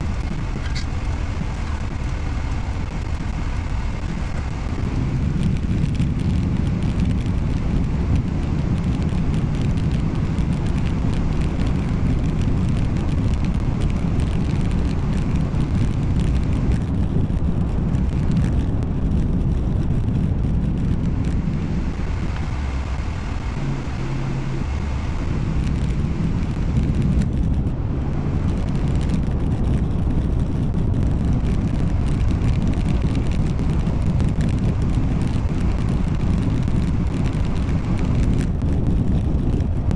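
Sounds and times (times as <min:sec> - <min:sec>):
car road and engine rumble: 0:00.0 - 0:39.9.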